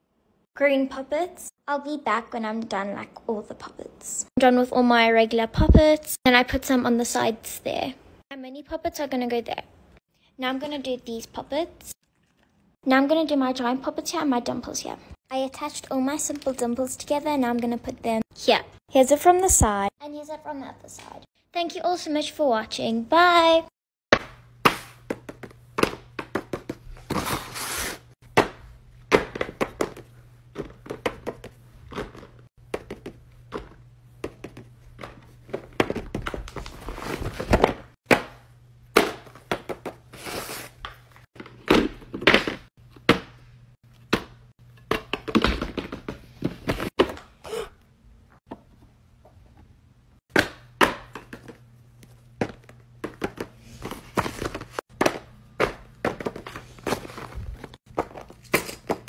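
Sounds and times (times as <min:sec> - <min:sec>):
paper rustling and sliding: 0:27.0 - 0:28.1.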